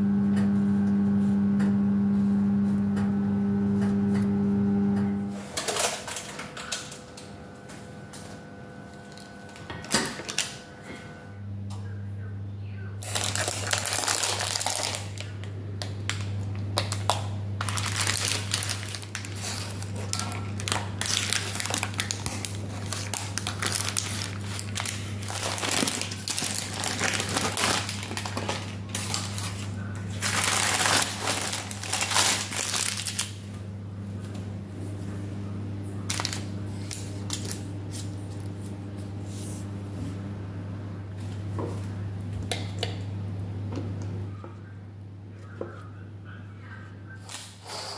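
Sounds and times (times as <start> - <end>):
steady low hum: 0.0 - 47.9
baking paper crinkling: 13.0 - 33.5, 36.0 - 39.5.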